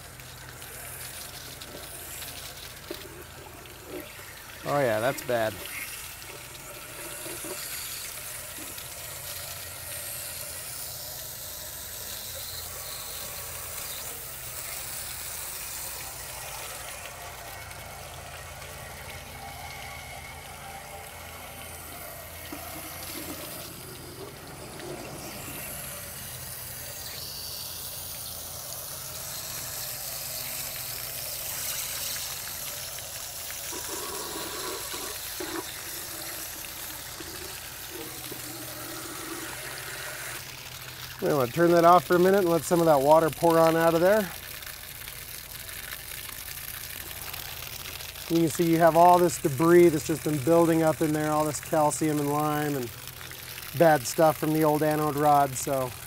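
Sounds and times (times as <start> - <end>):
water gushing and splashing: 0.0 - 56.0
hose wand spraying: 22.0 - 40.5.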